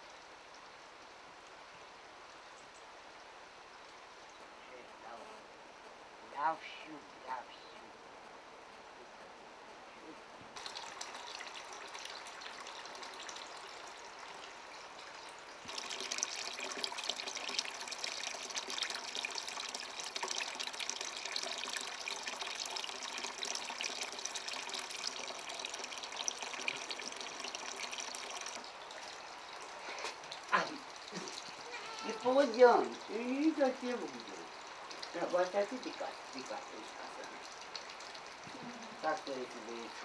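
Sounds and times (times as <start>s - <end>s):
tap water pouring into bucket: 10.6s - 40.0s.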